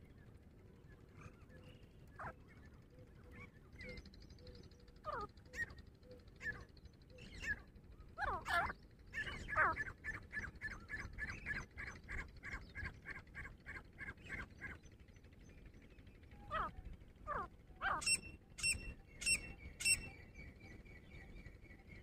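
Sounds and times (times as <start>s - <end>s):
francolin calling: 17.3s - 20.1s.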